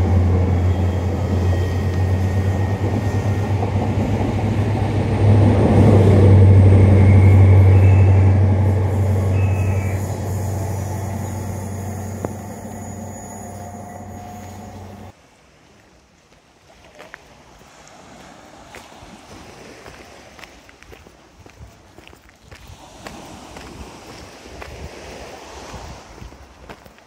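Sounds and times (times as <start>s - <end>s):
diesel train engine hum: 0.0s - 15.2s
train wheels rumbling on rails: 0.0s - 15.2s.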